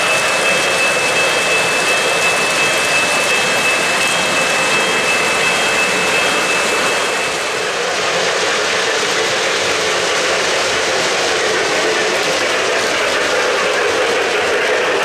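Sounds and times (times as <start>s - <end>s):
thin high whine: 0.0s - 8.0s
model train wheels rolling: 0.0s - 15.0s.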